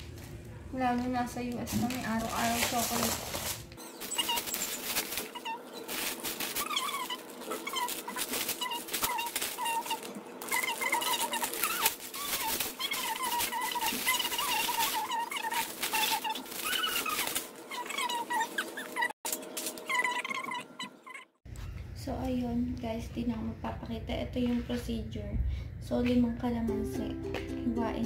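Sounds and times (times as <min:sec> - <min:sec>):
plastic bag crackling: 0:01.4 - 0:20.1
animal whining: 0:03.8 - 0:19.2, 0:19.8 - 0:21.4.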